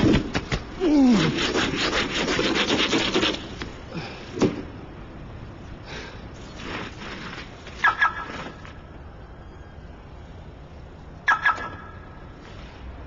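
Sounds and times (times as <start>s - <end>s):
rapid rasping scraping strokes: 1.0s - 3.6s.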